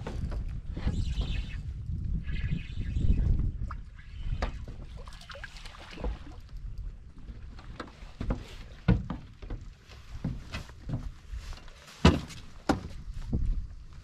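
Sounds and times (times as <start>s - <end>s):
dull thumps on boat: 7.6s - 11.2s, 12.0s - 13.0s.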